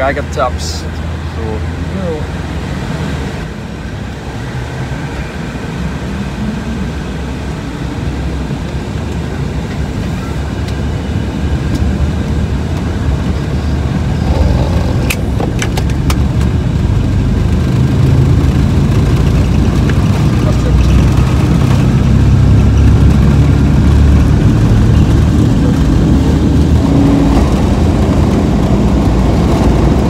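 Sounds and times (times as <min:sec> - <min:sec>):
jet engines at takeoff power: 0:00.0 - 0:30.0.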